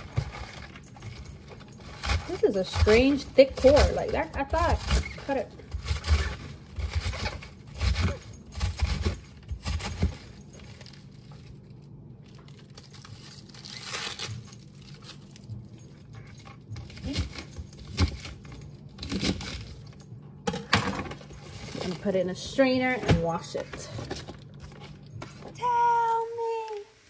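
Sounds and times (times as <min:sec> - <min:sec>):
cabbage leaves rustling and crunching: 0:01.8 - 0:09.0, 0:12.5 - 0:15.3.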